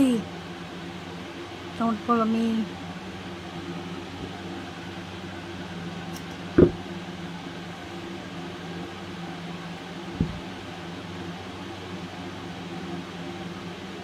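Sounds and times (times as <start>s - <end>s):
low mechanical hum: 0.0s - 14.0s
short knocks: 6.6s - 6.8s.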